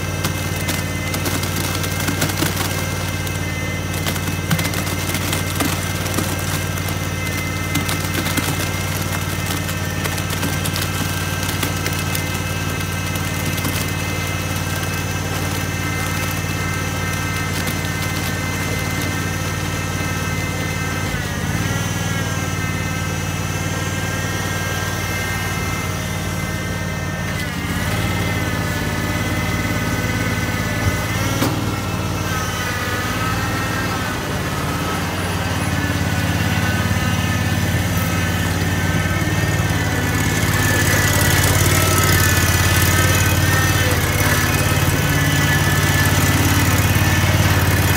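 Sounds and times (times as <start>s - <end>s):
concrete tipping out: 0.0s - 21.2s, 29.4s - 47.9s
small gas engine running: 0.0s - 47.9s.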